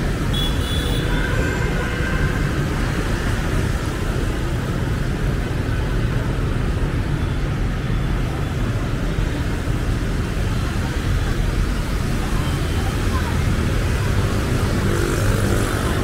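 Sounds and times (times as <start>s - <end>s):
street traffic rumble: 0.0s - 16.0s.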